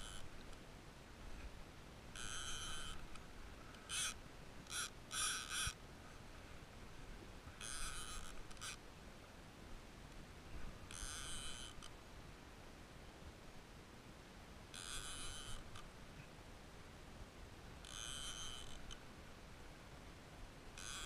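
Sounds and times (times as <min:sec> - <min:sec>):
fishing reel clicker buzzing: 0:00.0 - 0:00.3, 0:02.2 - 0:03.1, 0:03.9 - 0:05.8, 0:07.6 - 0:08.8, 0:10.9 - 0:11.9, 0:14.8 - 0:15.8, 0:17.8 - 0:19.0, 0:20.8 - 0:21.0
faint wind and water hiss: 0:00.0 - 0:21.0.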